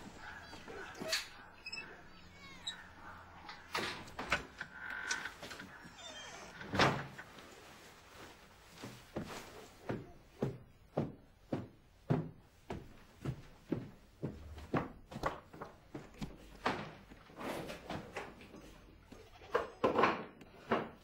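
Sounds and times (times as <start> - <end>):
footsteps on stairs: 8.2 - 19.2.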